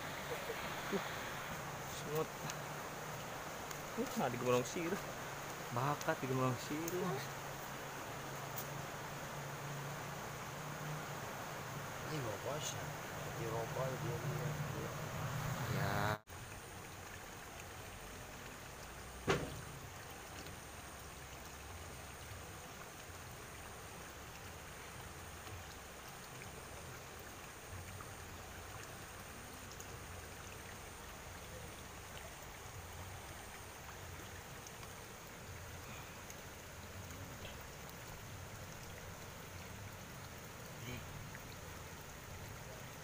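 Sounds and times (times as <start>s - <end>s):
sharp knock: 19.2s - 19.6s.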